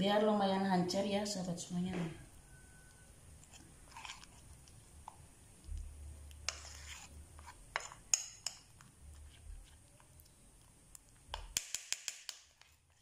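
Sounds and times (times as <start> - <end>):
metal spoon scraping a ceramic plate: 6.5 - 8.7.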